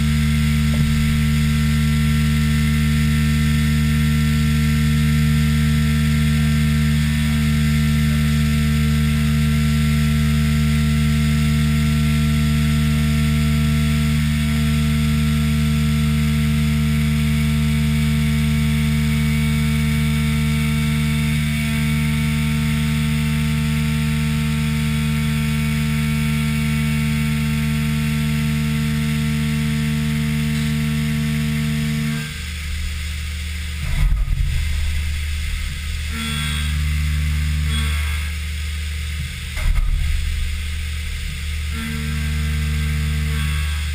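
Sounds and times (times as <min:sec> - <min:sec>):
milling machine cutting whine: 0:00.0 - 0:43.9
loud knock: 0:00.6 - 0:01.4, 0:33.8 - 0:36.1, 0:39.5 - 0:41.7.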